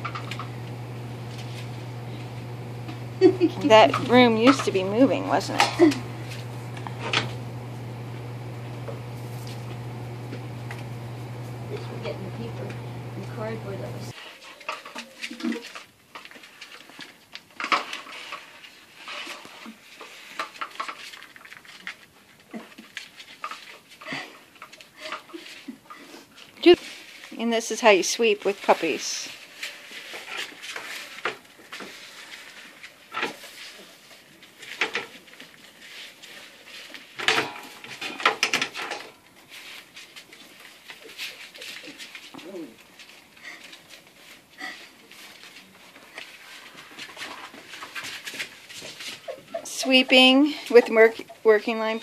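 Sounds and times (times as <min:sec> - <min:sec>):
broom scraping tiled floor: 0:00.0 - 0:14.3, 0:17.8 - 0:21.1
puppies scuffling: 0:39.4 - 0:51.0.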